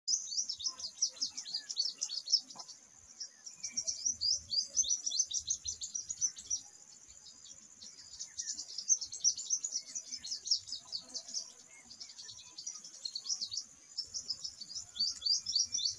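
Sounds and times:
sunbird twittering: 0.1 - 15.9.

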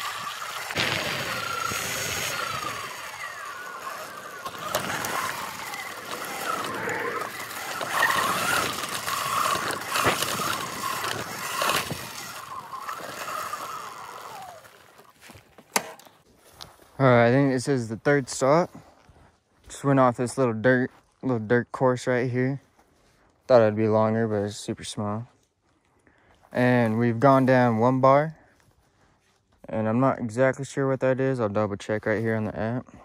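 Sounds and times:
electric motor whine: 0.0 - 16.0
tyre noise: 0.0 - 17.2.

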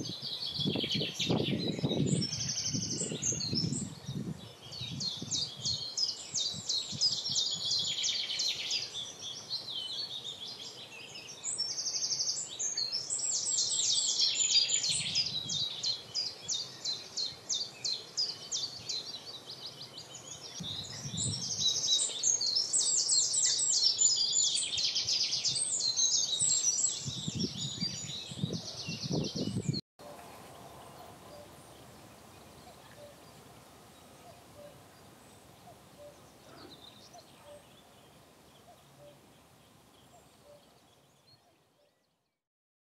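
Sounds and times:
songbird singing trills: 0.0 - 42.2
outdoor background noise: 0.0 - 42.4.

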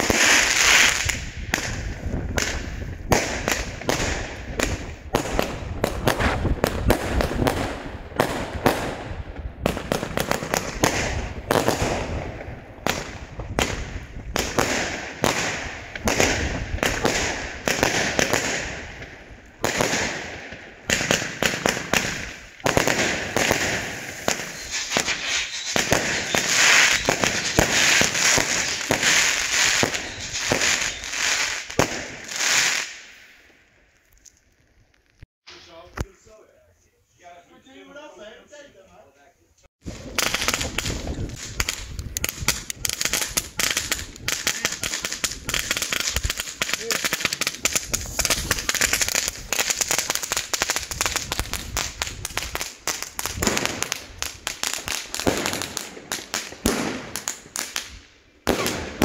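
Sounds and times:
firework launch thumps and bursts: 0.0 - 31.0
hissing crackle of bursting stars: 23.0 - 33.4.

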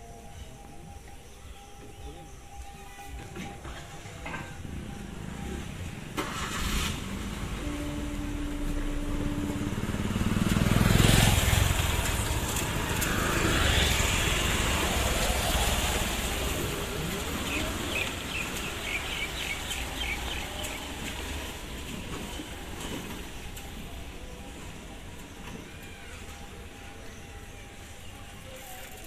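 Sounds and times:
motorcycle passing: 4.8 - 24.0
car passing: 4.8 - 25.1.

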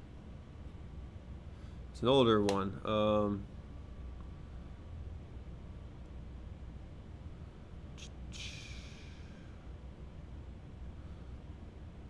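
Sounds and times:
low background hum: 0.0 - 12.0.

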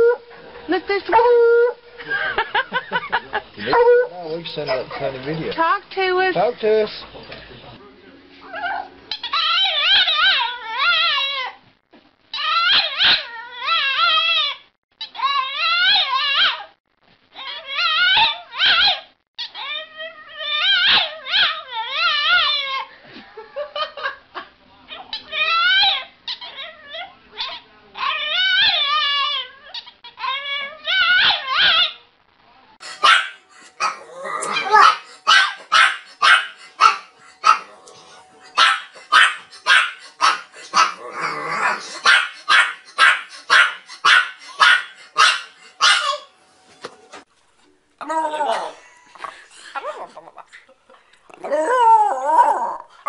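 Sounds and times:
dog crying: 3.6 - 5.0, 8.4 - 11.6, 12.3 - 16.7, 17.4 - 22.9, 24.9 - 32.0, 32.8 - 46.3, 48.0 - 50.6, 51.4 - 53.0.

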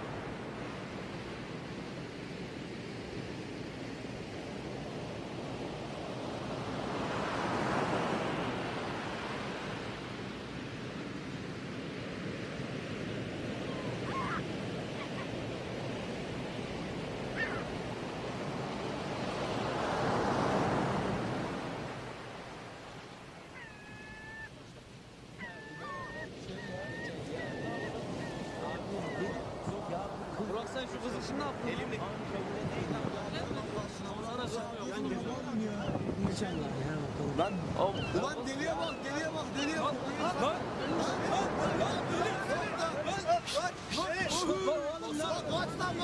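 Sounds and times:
waves washing on rocky shore: 13.3 - 23.4, 38.4 - 46.0
short high calls: 43.4 - 44.6.

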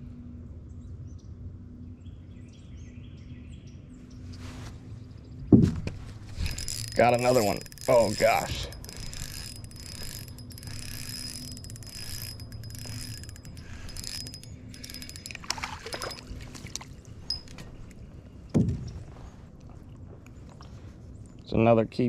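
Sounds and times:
fishing reel clicking and whirring: 6.4 - 18.0
thump: 18.5 - 19.0.

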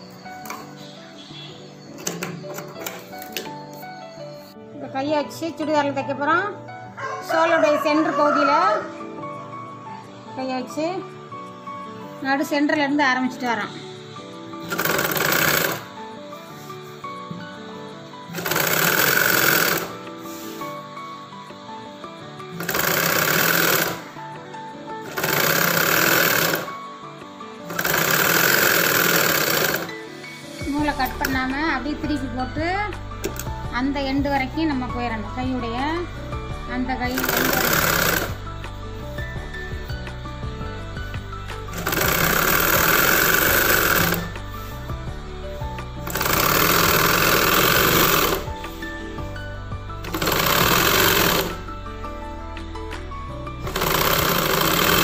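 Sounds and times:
soft background music: 0.0 - 55.0
sewing machine stitching: 14.6 - 16.0, 18.3 - 20.0, 22.6 - 24.2, 25.0 - 26.8, 27.7 - 30.0, 37.1 - 38.4, 41.7 - 44.4, 46.0 - 48.6, 50.0 - 51.7, 53.7 - 55.0.

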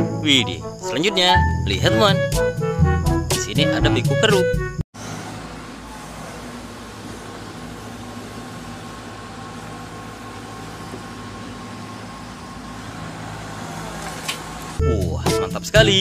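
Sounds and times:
excavator diesel engine running: 5.0 - 16.0.

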